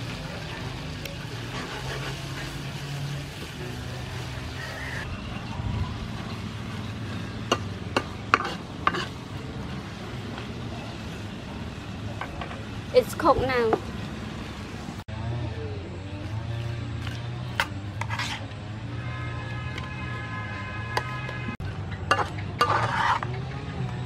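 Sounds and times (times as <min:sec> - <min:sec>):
metal spatula stirring: 0:07.4 - 0:10.4, 0:17.9 - 0:18.5, 0:22.0 - 0:23.3.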